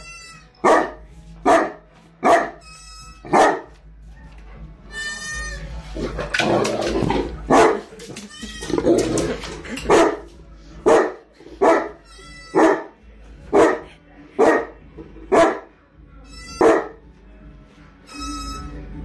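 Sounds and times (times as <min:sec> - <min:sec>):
dog barking: 0:00.6 - 0:02.6, 0:03.3 - 0:03.7, 0:07.5 - 0:07.9, 0:09.9 - 0:15.7, 0:16.6 - 0:17.0.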